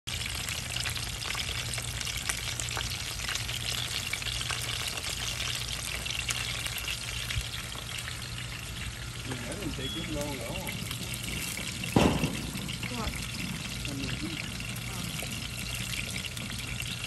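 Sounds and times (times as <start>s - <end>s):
fish sizzling in oil: 0.1s - 17.0s
low steady hum: 0.2s - 17.0s.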